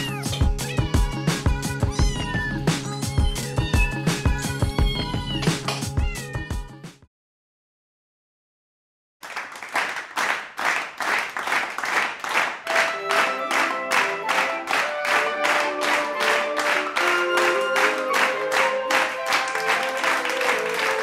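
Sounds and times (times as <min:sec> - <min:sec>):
cat meowing: 0:00.0 - 0:02.6, 0:03.3 - 0:06.7
music: 0:00.0 - 0:07.1, 0:12.6 - 0:21.0
sharp clap-like beat: 0:09.2 - 0:21.0.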